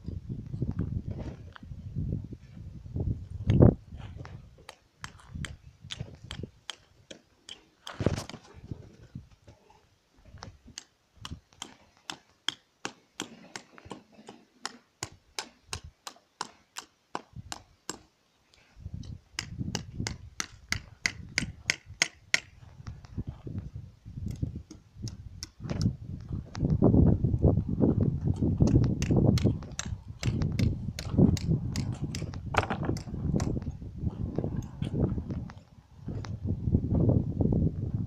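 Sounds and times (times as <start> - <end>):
low rumbling microphone noise: 22.6 - 38.0.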